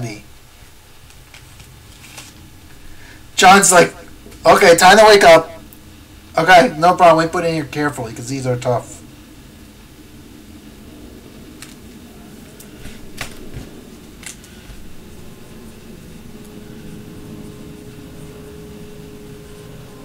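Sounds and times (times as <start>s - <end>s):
low room hum: 0.0s - 20.0s
plastic clicks and rustles: 1.0s - 2.4s.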